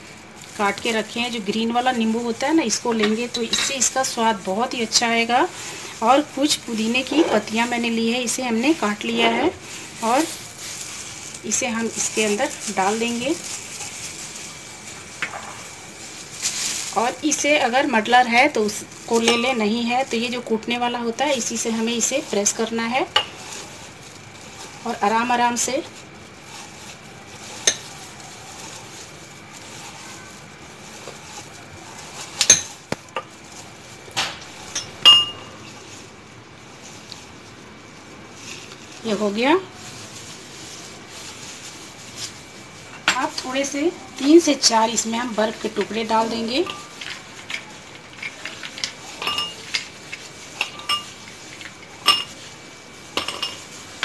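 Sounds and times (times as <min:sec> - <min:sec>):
ice cubes clinking in a glass: 0:46.6 - 0:50.0.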